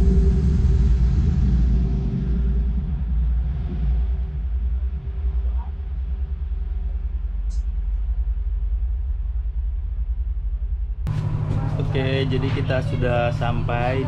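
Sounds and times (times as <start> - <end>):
ship engines rumbling: 10.7 - 14.0.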